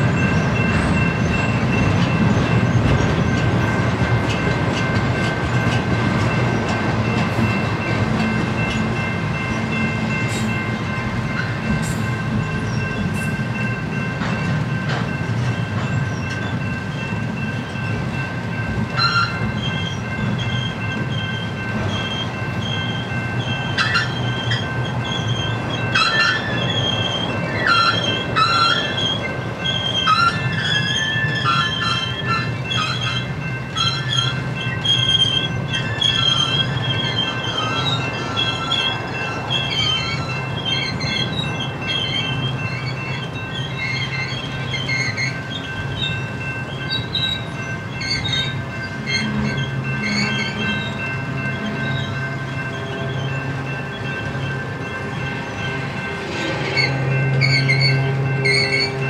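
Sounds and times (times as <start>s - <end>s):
train wheels rumbling on rail: 0.0s - 59.0s
high-pitched wheel squeals: 19.0s - 46.2s, 46.8s - 53.4s, 56.6s - 59.0s.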